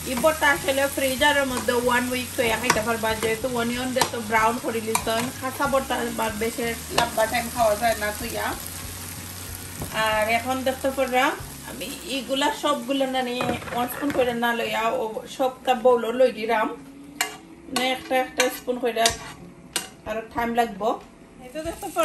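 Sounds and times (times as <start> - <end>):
onions sizzling: 0.0 - 15.8, 21.4 - 22.0
metal spoon scraping frying pan: 17.2 - 20.0.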